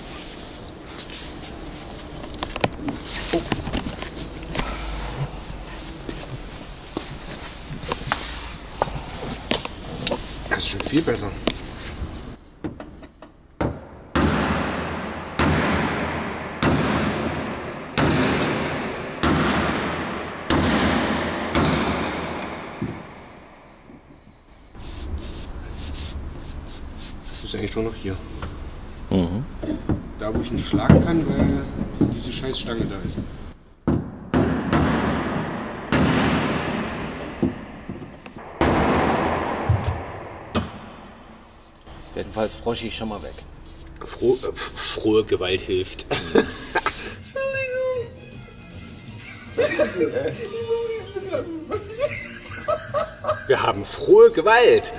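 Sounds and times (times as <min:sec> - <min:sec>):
hammer striking steel: 0:13.8 - 0:23.6, 0:34.3 - 0:41.8
heavy blows on sheet metal: 0:13.8 - 0:24.1, 0:34.0 - 0:42.1.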